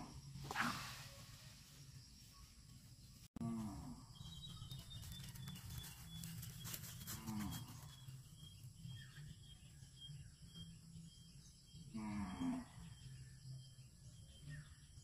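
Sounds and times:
cow mooing: 11.9 - 12.8.

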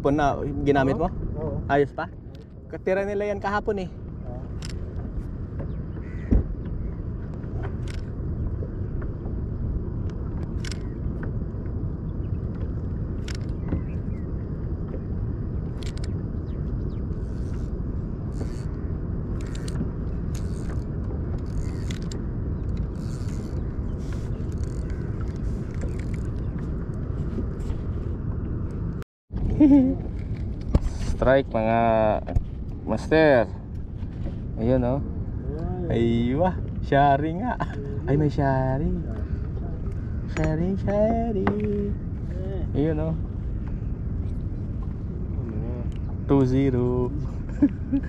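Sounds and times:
wind rumble on microphone: 0.0 - 48.0.

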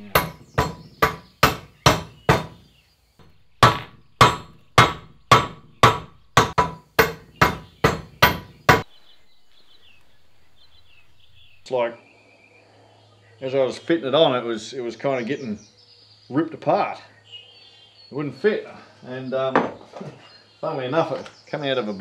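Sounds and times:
hammer striking metal: 0.0 - 2.5, 3.6 - 8.8.

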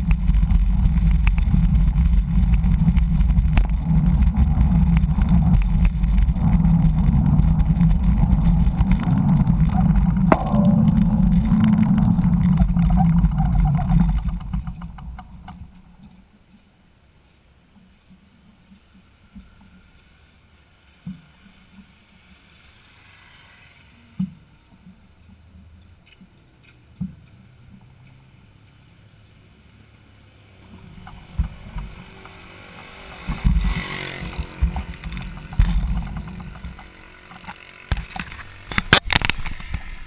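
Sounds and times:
wind buffeting microphone: 0.0 - 15.8
rumbling and jolting: 0.0 - 16.0, 33.0 - 39.8
bike rolling on concrete: 0.0 - 40.0.

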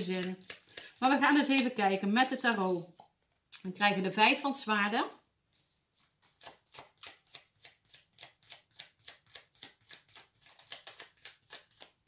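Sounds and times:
cards being shuffled: 0.0 - 3.1, 5.6 - 12.0.

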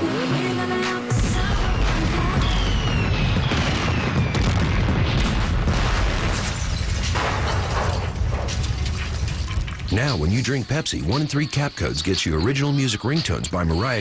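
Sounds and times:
music: 0.0 - 4.5
fireworks booming: 1.1 - 10.0
firework cracks: 1.4 - 9.9
falling firework whistles: 1.6 - 5.0.

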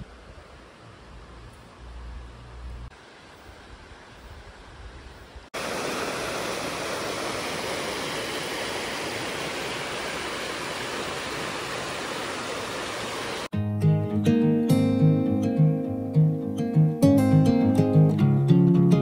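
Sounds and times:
faint outdoor noise: 0.0 - 14.2
fast-flowing water rushing: 5.6 - 13.5.

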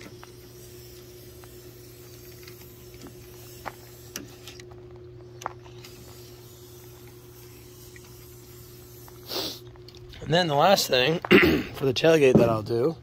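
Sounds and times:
aerosol can spraying: 0.0 - 4.6, 5.7 - 9.7.

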